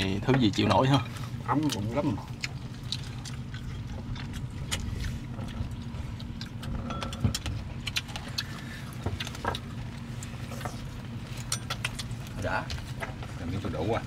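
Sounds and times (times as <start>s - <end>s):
low engine hum: 0.0s - 14.0s.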